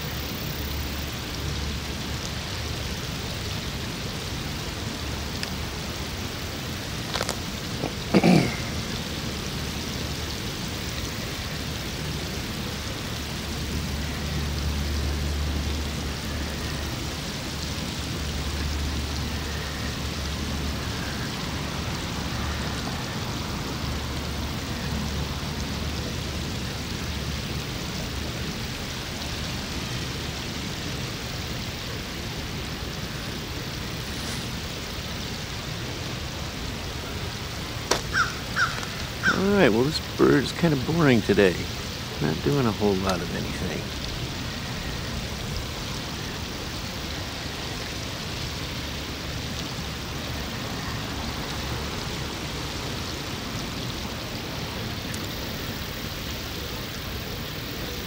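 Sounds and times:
outdoor hiss and low rumble: 0:00.0 - 0:58.0
faint bird calls: 0:38.0 - 0:39.5.

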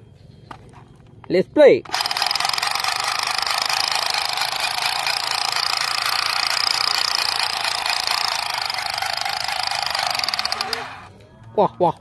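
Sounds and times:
toy rifle mechanical rattle: 0:01.8 - 0:11.1.

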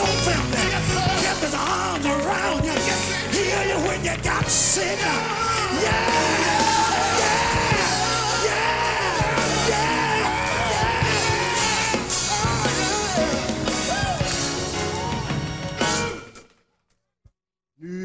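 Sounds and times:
singers shouting: 0:00.0 - 0:15.5
gospel band playing: 0:00.0 - 0:16.3.

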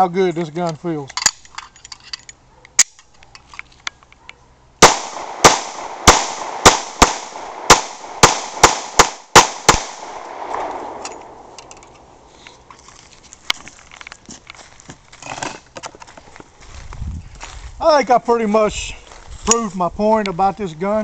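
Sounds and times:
pistol shots with echo: 0:04.8 - 0:11.6.

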